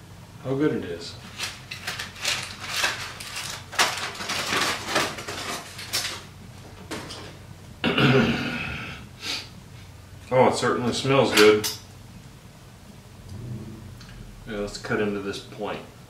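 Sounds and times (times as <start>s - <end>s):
aluminium foil crinkling: 1.2s - 6.3s.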